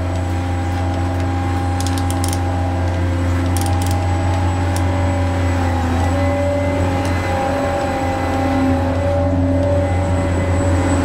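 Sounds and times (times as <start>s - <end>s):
toy electric motors whining: 1.6s - 9.9s
sharp clicking bursts: 1.8s - 4.9s.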